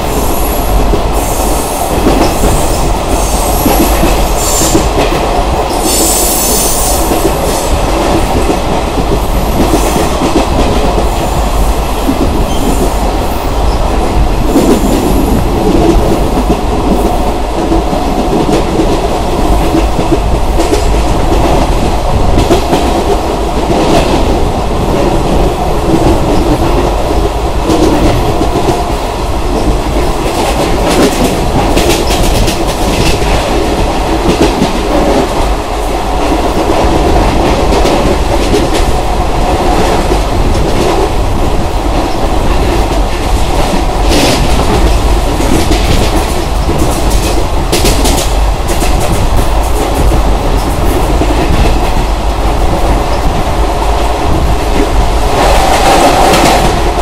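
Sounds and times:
train wheels rumbling on track: 0.0s - 57.0s.

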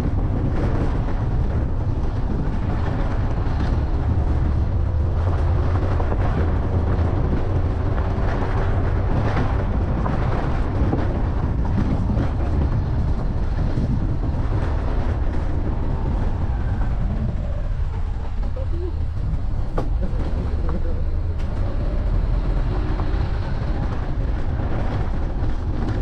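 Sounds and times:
vehicle low rumble: 0.0s - 26.0s.

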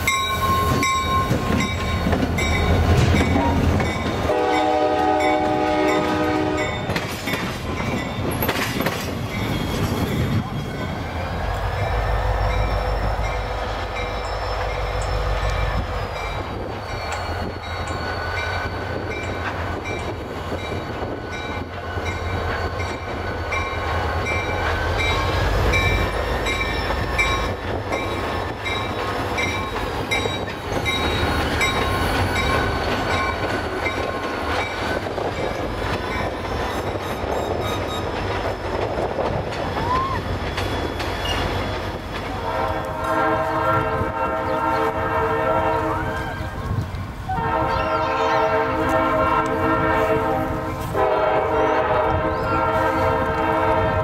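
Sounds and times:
wheels clacking over rail: 6.8s - 10.0s.

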